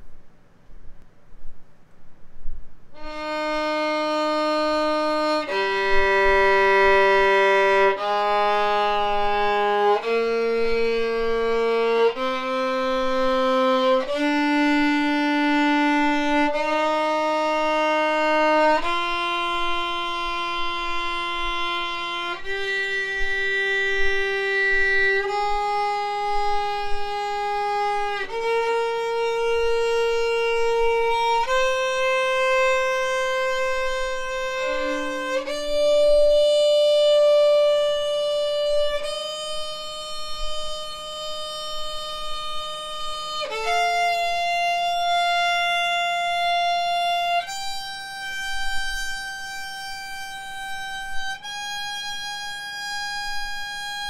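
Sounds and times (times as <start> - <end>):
violin playing slow bowed scale: 2.9 - 54.0.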